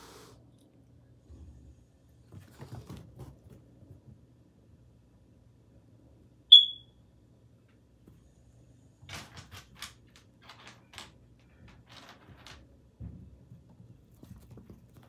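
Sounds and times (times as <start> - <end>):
kitten clicking and scratching on floor: 2.2 - 4.1, 9.0 - 12.8, 13.4 - 15.0
high-pitched electronic beep: 6.5 - 6.8.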